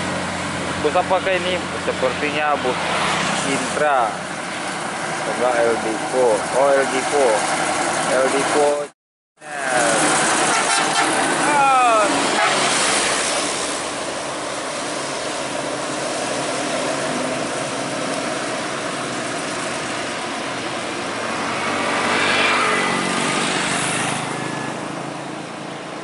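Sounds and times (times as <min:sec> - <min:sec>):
coach engine pulling away: 0:00.0 - 0:26.0
heavy truck passing: 0:00.0 - 0:26.0
motorcycles passing: 0:00.0 - 0:26.0.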